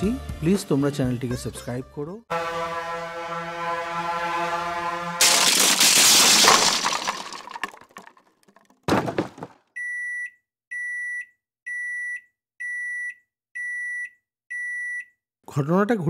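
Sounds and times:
loud crash: 0:02.3 - 0:09.5.

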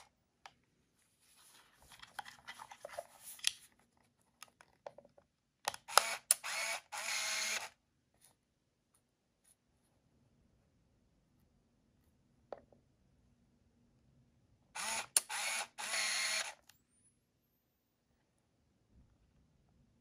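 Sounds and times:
camera motor whirring: 0:05.9 - 0:07.7, 0:14.8 - 0:16.6.

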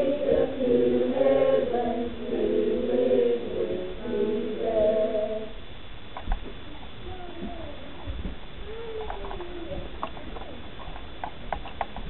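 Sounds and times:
choir singing: 0:00.0 - 0:05.6.

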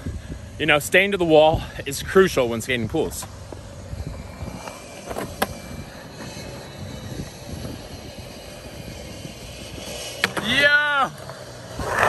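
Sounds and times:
skateboard wheels rolling on concrete: 0:00.0 - 0:12.0
skateboard clacks: 0:09.8 - 0:12.0.

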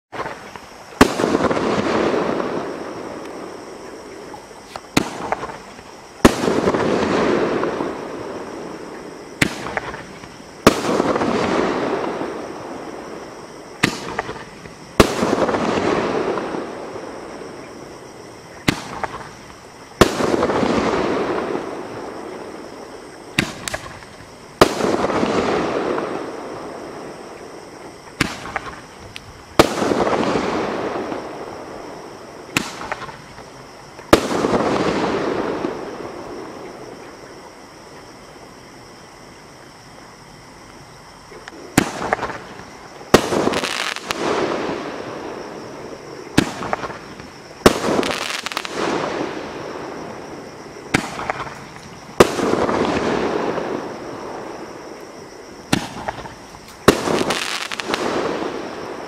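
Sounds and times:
small firework pops: 0:04.3 - 0:07.2, 0:09.4 - 0:11.6, 0:13.8 - 0:15.9, 0:18.6 - 0:20.9, 0:23.3 - 0:26.1, 0:28.1 - 0:31.2, 0:32.5 - 0:35.0, 0:41.3 - 0:44.6, 0:46.3 - 0:49.2, 0:50.9 - 0:53.8, 0:55.7 - 0:58.8.

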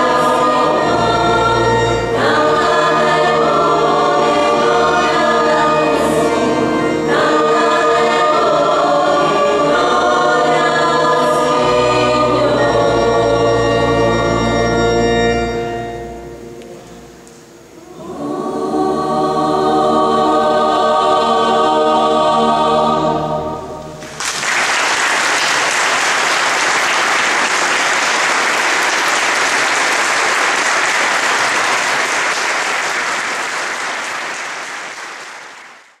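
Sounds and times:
choir singing with organ: 0:00.0 - 0:33.5
audience applause: 0:24.0 - 0:36.0.

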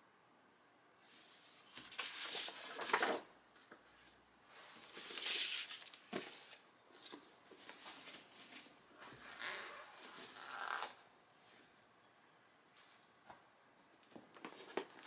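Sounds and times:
paper rustling and sliding: 0:01.1 - 0:03.2, 0:04.5 - 0:09.2.

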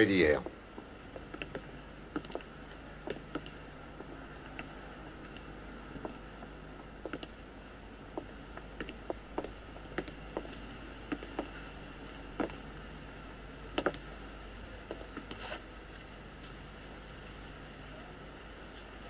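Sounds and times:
low room hum: 0:00.0 - 0:19.0
footsteps on hard floor: 0:00.4 - 0:04.7, 0:05.3 - 0:07.4, 0:08.1 - 0:12.6.

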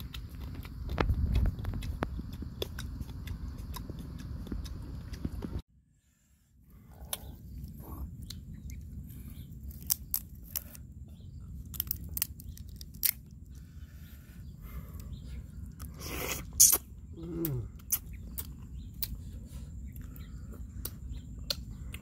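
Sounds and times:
steady low rumble: 0:00.0 - 0:22.0
crab shell cracking: 0:11.7 - 0:13.3.

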